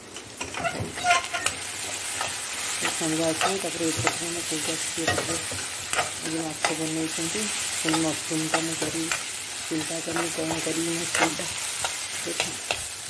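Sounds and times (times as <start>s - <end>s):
food frying and sizzling: 0.0s - 13.0s
metal spatula scraping pan: 0.4s - 6.8s.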